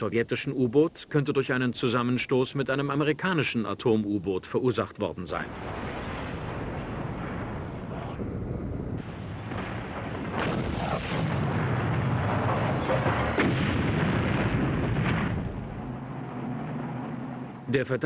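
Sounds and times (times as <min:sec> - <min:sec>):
rumbling explosions: 0:05.5 - 0:17.7
sharp cracks: 0:09.0 - 0:17.7.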